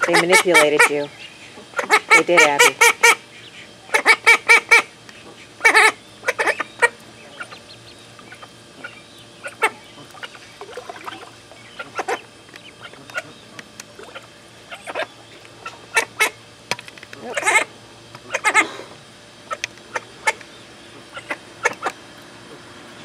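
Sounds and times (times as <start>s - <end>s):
duck quacking: 0.0s - 7.7s, 11.7s - 13.4s, 17.2s - 17.7s, 21.0s - 21.9s
ducklings peeping: 0.0s - 16.6s, 17.2s - 22.8s.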